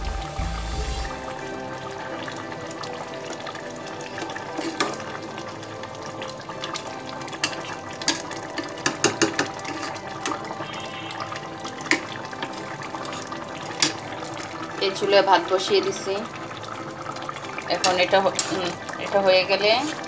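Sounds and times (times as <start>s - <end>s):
curry bubbling in a pot: 1.1s - 20.0s
metal spatula scraping a pot: 4.6s - 5.0s, 7.4s - 10.4s, 17.8s - 20.0s.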